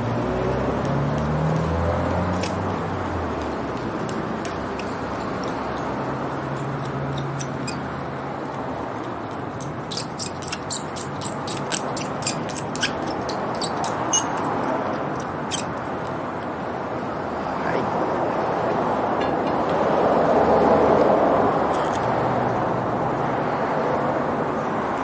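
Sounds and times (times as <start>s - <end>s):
razor scraper squeaking on glass: 2.3s - 2.8s, 4.3s - 8.7s, 9.5s - 15.8s.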